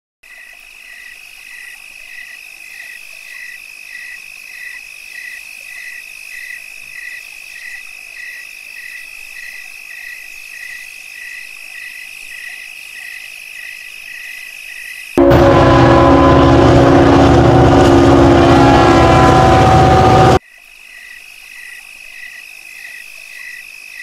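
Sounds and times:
regular cricket chirp: 0.3 - 15.2, 20.4 - 24.0.

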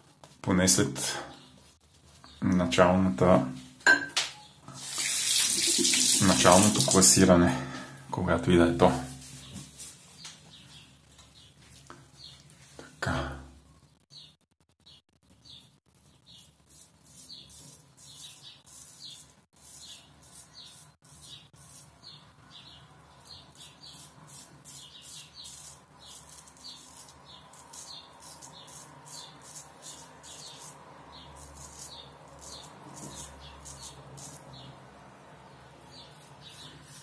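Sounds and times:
razor scraping stubble: 15.5 - 22.2, 23.2 - 34.7, 35.8 - 37.0.

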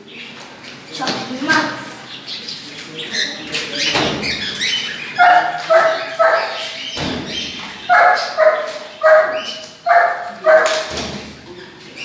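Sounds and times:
dog barking: 5.2 - 6.8, 7.9 - 11.1.

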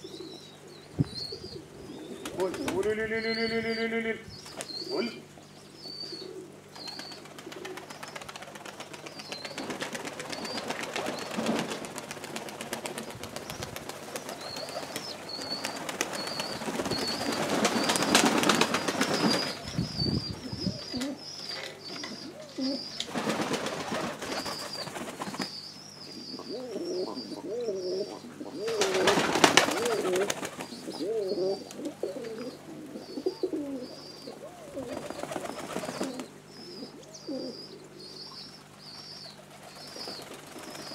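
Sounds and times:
pigeons cooing: 0.0 - 40.9
wings flapping: 2.2 - 2.9, 6.8 - 19.9, 23.0 - 25.5, 28.7 - 31.0, 34.7 - 36.3, 39.3 - 40.9
small bird chirping: 13.4 - 23.1.

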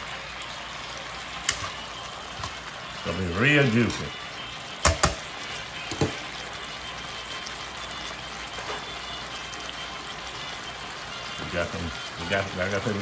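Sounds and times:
food sizzling in a skillet: 0.0 - 13.0
metal tongs clacking on pan: 1.4 - 1.8, 4.8 - 5.3.

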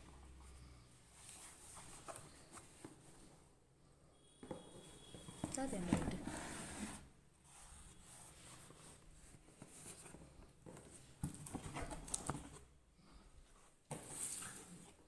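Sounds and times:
cardboard scraping and rustling: 5.3 - 7.1.

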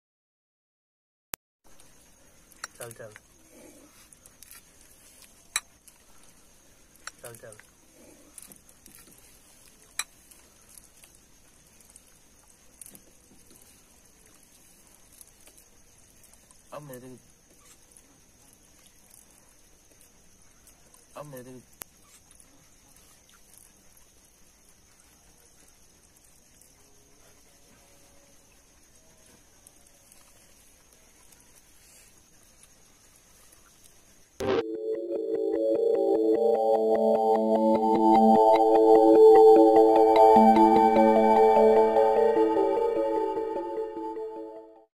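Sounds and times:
faint background hiss: 1.7 - 44.7
electronic keyboard music: 34.4 - 44.9.

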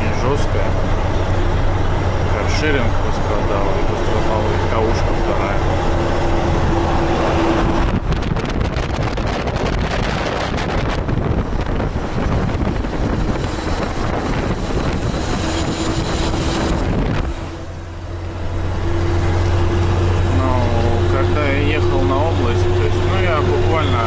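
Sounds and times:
road noise: 0.0 - 24.0
truck diesel engine drone: 0.0 - 24.0
wind rushing over microphone: 0.0 - 24.0.

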